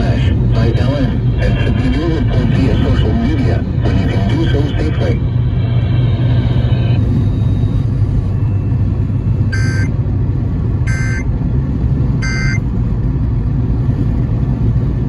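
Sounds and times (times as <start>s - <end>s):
road and engine noise in car: 0.0s - 15.0s
radio data tone bursts: 0.6s - 9.9s, 10.9s - 11.3s, 12.2s - 12.6s.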